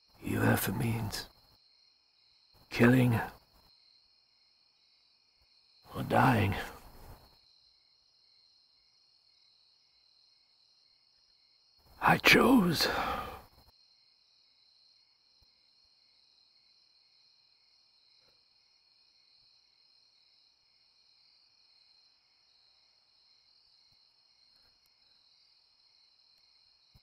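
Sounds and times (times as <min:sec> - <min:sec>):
crickets chirring: 0:00.0 - 0:27.0.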